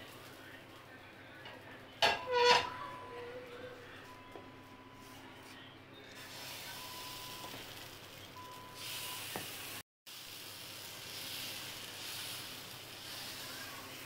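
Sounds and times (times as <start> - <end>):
batter sizzling on hot griddle: 6.1 - 14.0.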